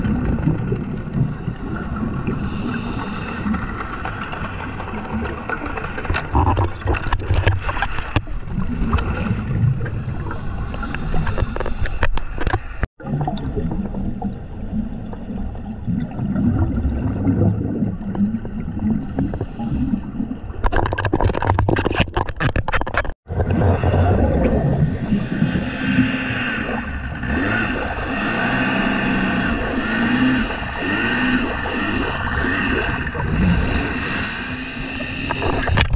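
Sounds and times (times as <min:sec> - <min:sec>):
scuba regulator bubbles gurgling: 0:00.0 - 0:21.6, 0:23.3 - 0:35.9
low underwater rumble: 0:13.0 - 0:20.6.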